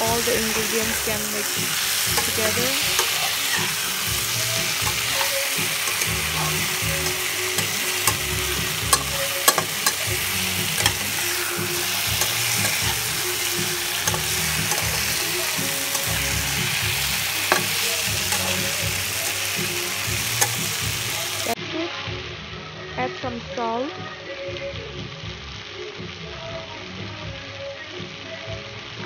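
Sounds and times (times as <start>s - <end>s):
food sizzling in hot oil: 0.0s - 21.6s
spatula knocking against pan: 8.9s - 10.1s.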